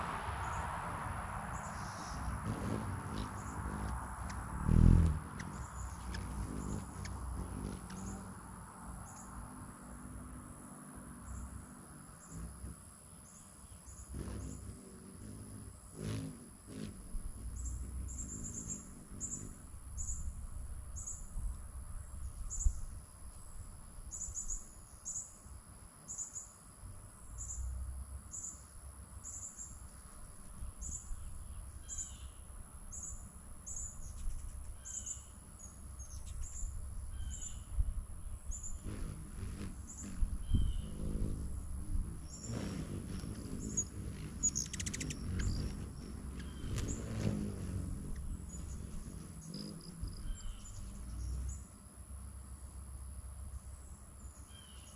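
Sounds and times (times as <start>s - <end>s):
lower bird chirps: 1.5s - 8.4s, 9.0s - 25.4s, 30.6s - 51.8s, 53.7s - 54.9s
high bird chirps: 43.4s - 47.2s.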